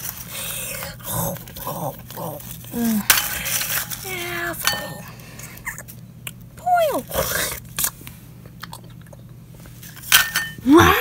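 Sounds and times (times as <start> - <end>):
plush toys rustling: 0.0 - 4.7
person falling vocal sound: 10.6 - 11.0.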